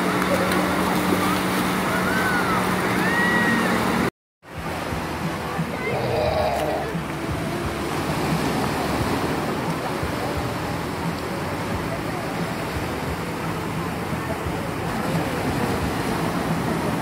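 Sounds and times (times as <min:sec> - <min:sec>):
faint voices of people: 0:00.0 - 0:04.0, 0:04.6 - 0:08.2, 0:09.1 - 0:17.0
waves breaking on beach: 0:00.0 - 0:17.0.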